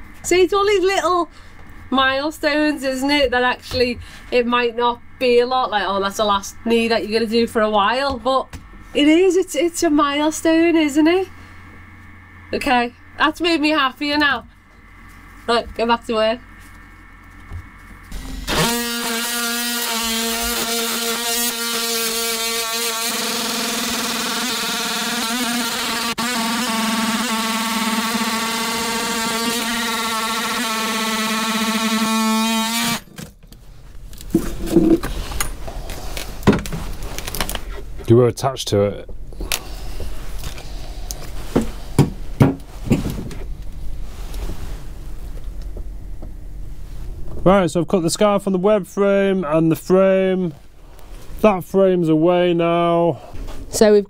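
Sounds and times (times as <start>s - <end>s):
low steady hum: 0.0s - 54.0s
oscillating multi-tool cutting wood: 18.0s - 33.1s
sharp knocks: 41.6s - 43.3s.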